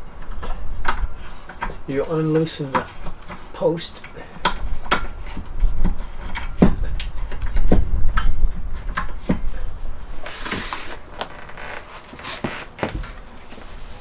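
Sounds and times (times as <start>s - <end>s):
rustling scrape: 9.5s - 14.0s.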